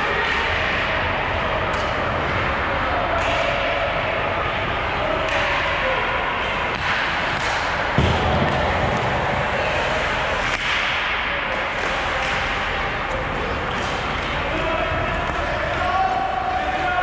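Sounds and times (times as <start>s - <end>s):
skates on ice: 6.8s - 17.0s.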